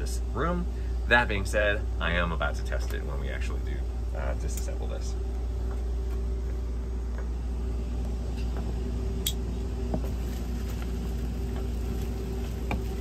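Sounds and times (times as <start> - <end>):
hvac equipment humming: 0.0 - 13.0
foil duct crinkling: 10.1 - 13.0.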